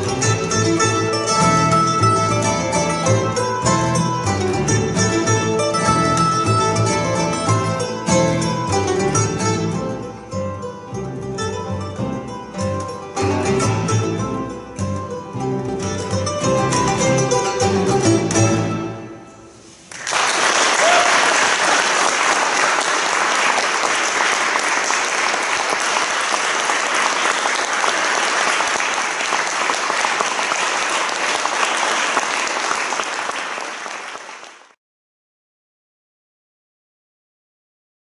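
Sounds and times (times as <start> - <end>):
plucked string chord: 0.0 - 19.1
audience applauding: 19.9 - 34.8.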